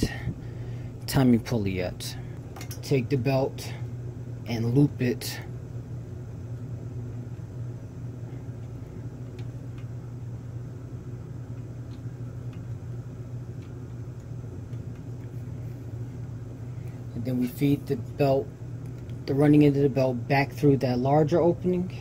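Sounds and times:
ventilation hum: 0:00.0 - 0:22.0.

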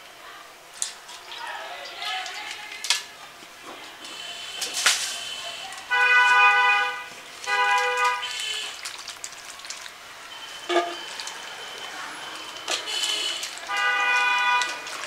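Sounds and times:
vehicle horn honking: 0:04.1 - 0:08.8, 0:10.6 - 0:11.0, 0:12.7 - 0:15.0.

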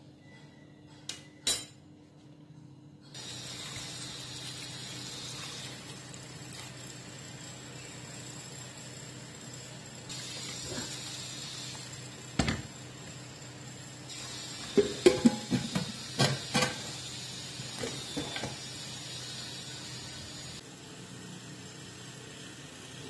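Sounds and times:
water pouring into a pot: 0:03.2 - 0:07.4
metal lid clanking and clicking: 0:14.8 - 0:16.8.

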